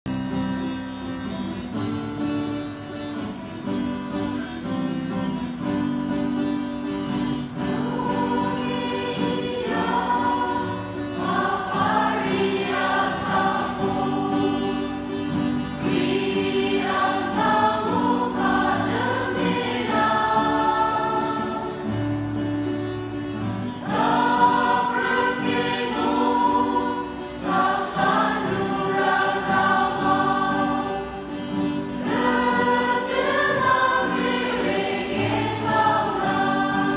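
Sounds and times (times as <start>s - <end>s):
choir singing a hymn: 7.4s - 22.5s, 23.4s - 36.9s.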